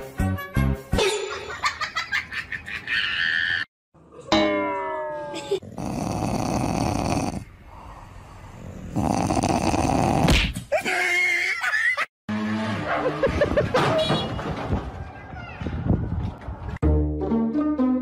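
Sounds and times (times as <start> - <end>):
dog growling: 5.6 - 10.4.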